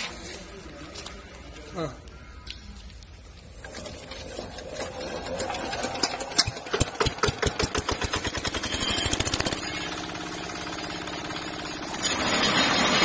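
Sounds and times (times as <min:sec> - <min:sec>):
diesel engine starting and running: 0:03.6 - 0:13.0.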